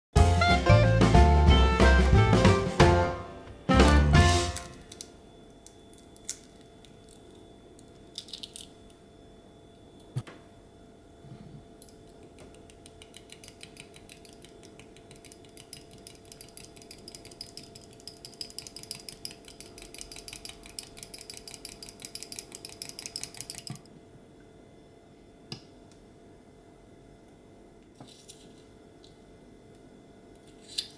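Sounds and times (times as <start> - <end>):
eggshell crackling: 3.9 - 8.9
fork clicking against glass bowl: 12.6 - 23.8.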